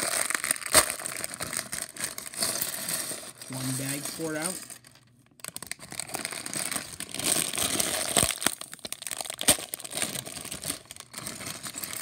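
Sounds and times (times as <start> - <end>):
plastic bag crinkling: 0.0 - 12.0
plastic bricks clattering: 6.1 - 12.0.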